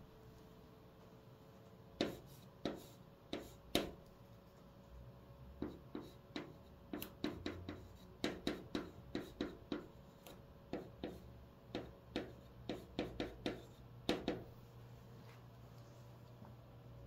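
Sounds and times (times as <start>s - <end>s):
chalk tapping on chalkboard: 2.0s - 4.0s, 5.6s - 14.5s.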